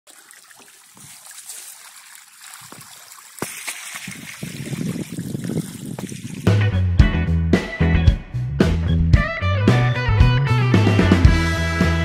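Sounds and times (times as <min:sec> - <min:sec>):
water trickling: 0:00.0 - 0:06.6
fish flapping in shallow water: 0:00.1 - 0:06.6
sharp splashes: 0:00.1 - 0:06.7.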